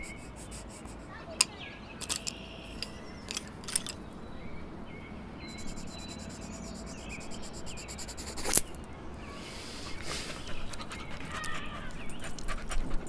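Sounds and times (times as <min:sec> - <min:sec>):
pencil scratching on paper: 0:00.0 - 0:01.3, 0:05.5 - 0:08.7
wooden pencils clicking together: 0:00.0 - 0:04.0, 0:05.6 - 0:08.8
faint outdoor ambience: 0:00.0 - 0:13.0.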